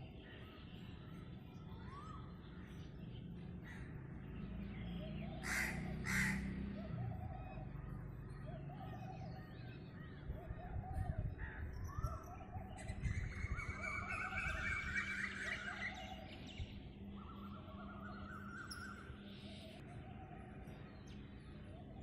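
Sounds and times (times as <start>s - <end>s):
small birds calling: 0.0s - 22.0s
crow cawing: 5.4s - 6.6s.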